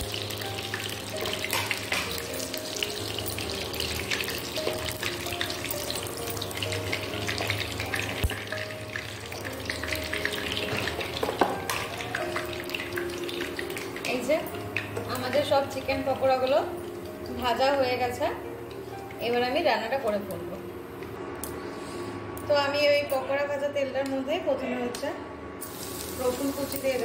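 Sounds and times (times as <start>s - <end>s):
chicken sizzling in hot oil: 0.0s - 16.6s, 25.6s - 27.0s.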